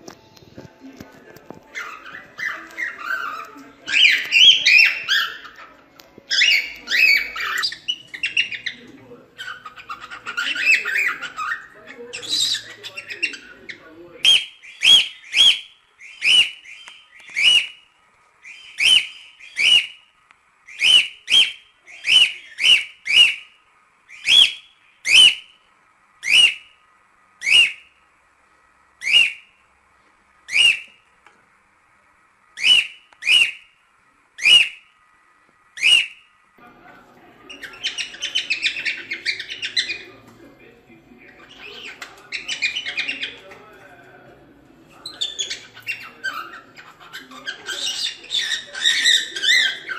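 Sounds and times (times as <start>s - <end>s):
cockatiel whistled calls: 1.7s - 5.6s, 6.3s - 8.8s, 14.2s - 17.8s, 18.4s - 20.0s, 20.7s - 23.5s, 24.1s - 25.5s, 26.2s - 26.7s, 27.4s - 27.9s, 29.0s - 29.5s, 30.5s - 31.0s, 32.6s - 33.7s, 34.4s - 34.8s, 35.8s - 36.3s, 37.5s - 40.1s, 45.0s - 49.9s
cockatiel chattering: 1.7s - 17.8s, 18.4s - 20.0s, 20.7s - 23.5s, 24.1s - 25.6s, 26.2s - 26.7s, 27.4s - 27.9s, 29.0s - 29.5s, 30.5s - 31.0s, 32.6s - 33.7s, 34.4s - 34.9s, 37.5s - 40.2s, 41.3s - 43.5s, 45.0s - 49.9s.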